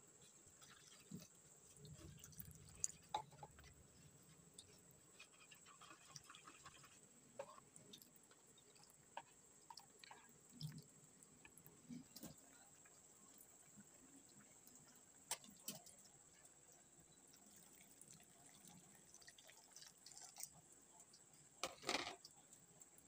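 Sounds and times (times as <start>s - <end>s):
soft wet squishing: 0.2s - 21.3s
spoon stirring in a bowl: 0.6s - 10.3s.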